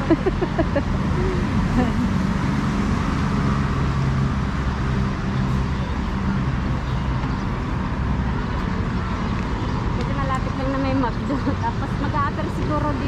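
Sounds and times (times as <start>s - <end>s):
road traffic noise: 0.0s - 13.0s.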